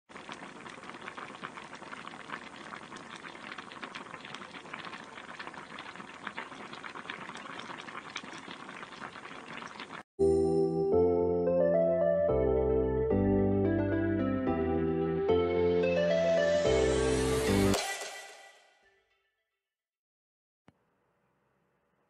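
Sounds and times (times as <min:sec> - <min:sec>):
food crackling while cooking: 0:00.1 - 0:10.1.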